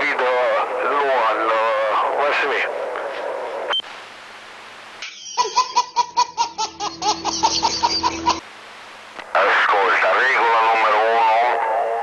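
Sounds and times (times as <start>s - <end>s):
faint hiss: 2.1s - 5.9s, 7.8s - 12.0s
baby laughing: 5.0s - 8.4s.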